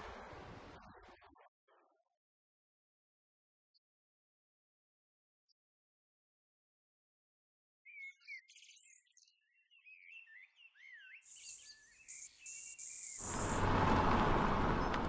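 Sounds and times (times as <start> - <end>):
small birds chirping faintly: 7.9 - 14.0.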